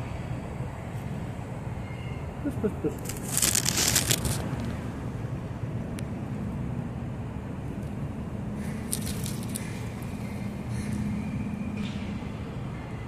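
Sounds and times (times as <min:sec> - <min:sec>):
low mechanical rumble: 0:00.0 - 0:13.0
crackly phone handling noise: 0:03.0 - 0:04.8.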